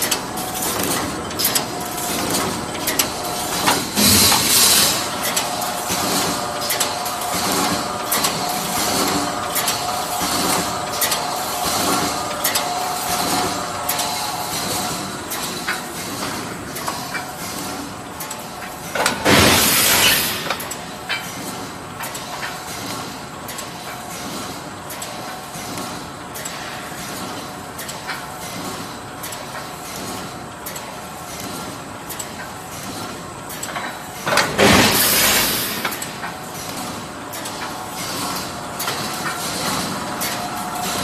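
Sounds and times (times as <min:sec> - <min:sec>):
welding machine humming: 0:00.0 - 0:15.8.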